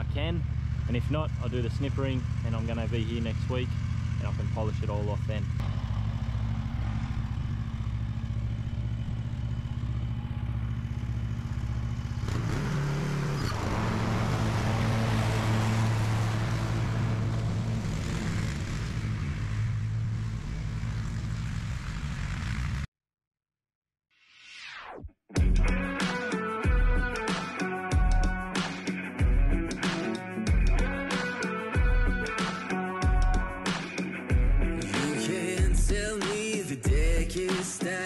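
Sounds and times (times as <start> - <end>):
mower engine running: 0.0 - 22.8.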